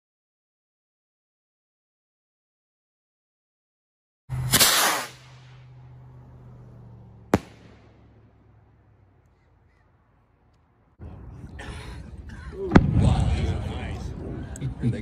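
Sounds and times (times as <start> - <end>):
sharp crack: 4.3 - 6.3, 7.2 - 9.4
firework rocket hiss: 4.4 - 5.6.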